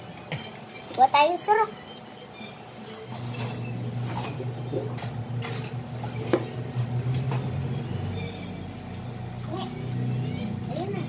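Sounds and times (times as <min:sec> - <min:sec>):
refrigerator hum: 0:00.0 - 0:11.0.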